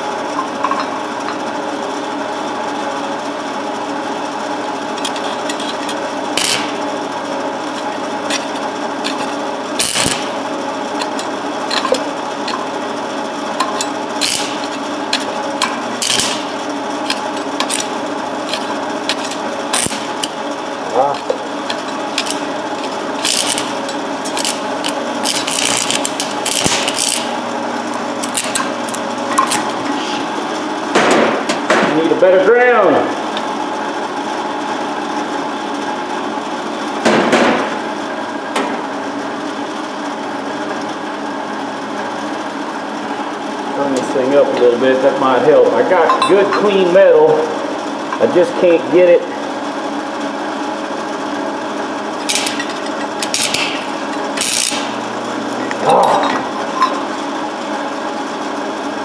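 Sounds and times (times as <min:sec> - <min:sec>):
welding arc buzzing crackle: 0:00.0 - 0:32.2, 0:46.4 - 0:59.0
welder hum: 0:00.0 - 0:59.0.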